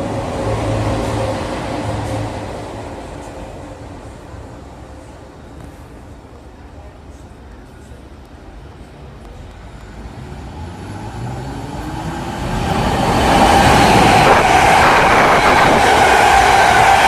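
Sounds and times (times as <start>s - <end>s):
train passing with high whine: 0.0s - 17.0s.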